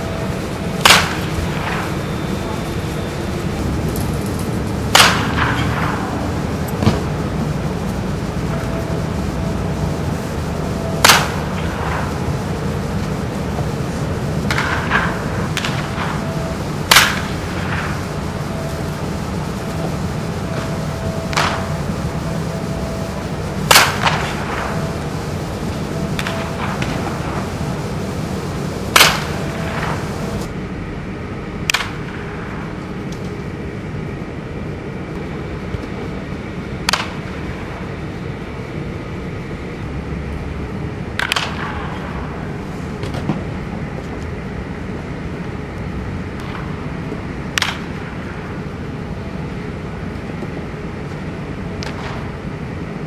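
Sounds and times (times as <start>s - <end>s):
low hum: 0.0s - 53.0s
baseball bat cracking balls: 0.1s - 9.0s, 10.7s - 17.9s, 23.5s - 24.9s, 25.6s - 27.7s, 28.3s - 30.5s, 36.8s - 37.4s, 41.2s - 42.0s, 47.5s - 48.3s.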